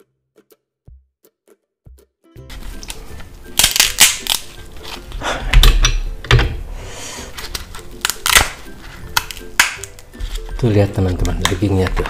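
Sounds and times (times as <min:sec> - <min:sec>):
scissors crunching crab shell: 0:02.8 - 0:05.9, 0:07.4 - 0:10.5, 0:11.2 - 0:12.0.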